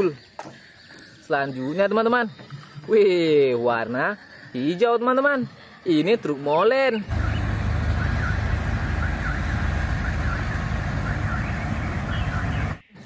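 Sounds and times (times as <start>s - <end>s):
diesel engine low rumble: 7.1s - 12.9s.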